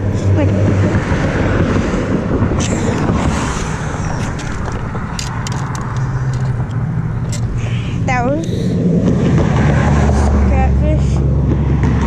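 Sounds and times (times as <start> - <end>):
road traffic rumbling: 0.0 - 12.0
sharp clicks: 2.6 - 8.7.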